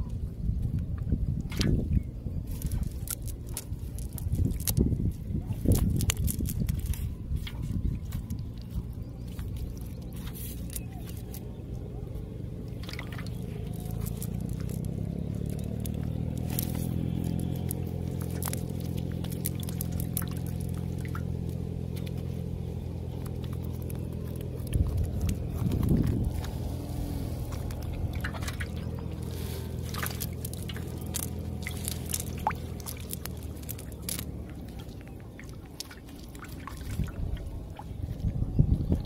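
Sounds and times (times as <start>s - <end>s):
low engine hum: 0.0s - 39.0s
fishing net pulled through mud: 1.5s - 39.0s.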